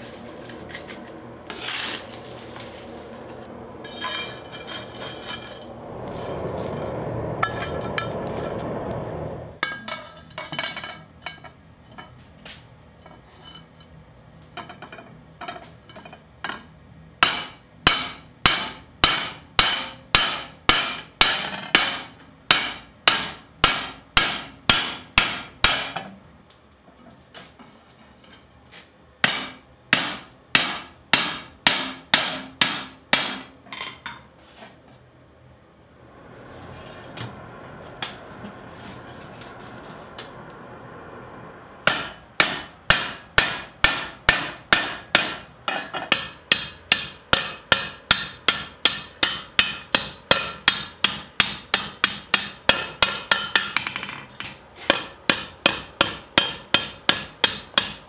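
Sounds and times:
steady rushing noise: 1.2 - 9.9, 35.5 - 45.7
hammer striking hot metal on anvil: 17.2 - 26.0, 29.2 - 34.0, 41.8 - 58.0.

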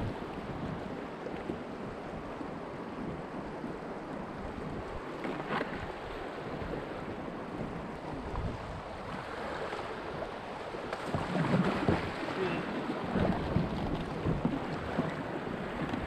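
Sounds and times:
wind on microphone: 0.0 - 16.0
whitewater rapids rushing: 11.4 - 13.5.

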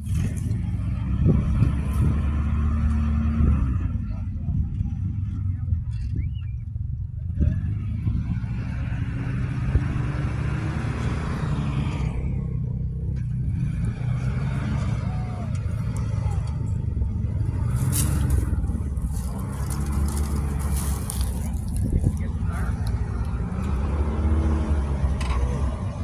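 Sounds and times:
truck engine low rumble: 0.0 - 26.0
sharp crackles: 17.7 - 22.3.

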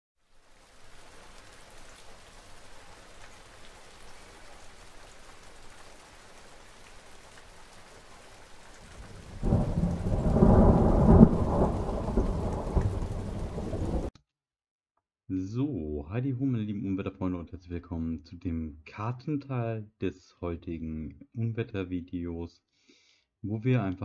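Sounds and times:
rain hiss: 0.2 - 14.1
thunderclap rumbling: 8.8 - 14.1.

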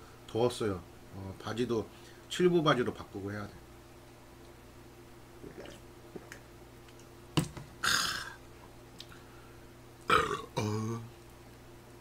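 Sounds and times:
steady low hum: 0.0 - 12.0
person grunting: 7.8 - 8.4, 10.1 - 11.1.

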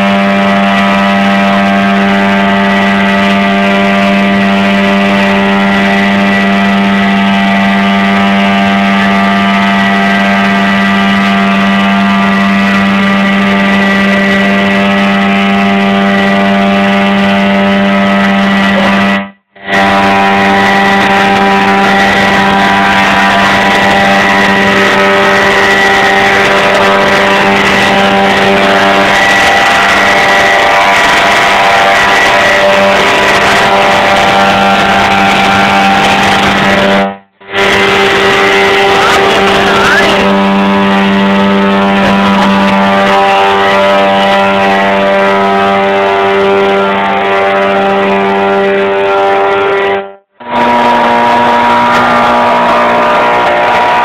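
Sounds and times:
boat engine running: 0.0 - 54.0.

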